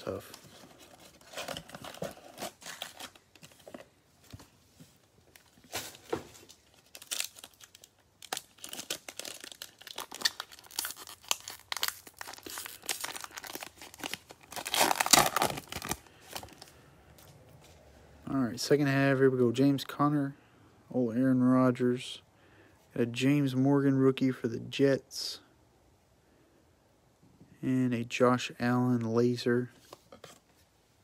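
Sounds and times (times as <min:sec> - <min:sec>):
foil wrapper crinkling: 0:05.8 - 0:16.7
foil wrapper tearing: 0:06.7 - 0:16.6.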